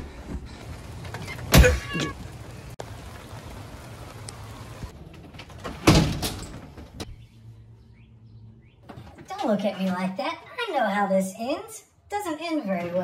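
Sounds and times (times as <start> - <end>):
rain hissing: 0.1 - 5.0
glass door banging shut: 5.4 - 6.9.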